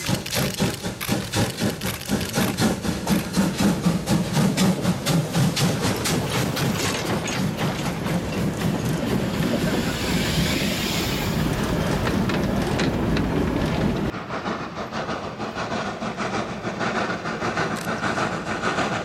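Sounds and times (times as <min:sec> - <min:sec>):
wagons rumbling and clacking: 0:00.0 - 0:10.6, 0:11.2 - 0:14.2
steam locomotive exhaust beats: 0:00.0 - 0:19.0.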